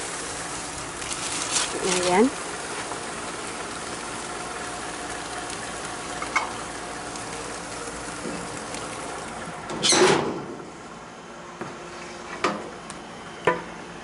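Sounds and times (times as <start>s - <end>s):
fish sizzling on a grill: 0.0s - 9.7s.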